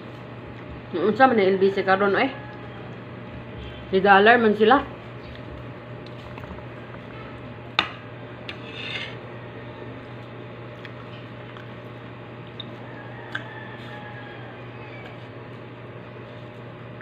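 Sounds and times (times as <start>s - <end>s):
fingers scraping a plate: 8.5s - 9.2s.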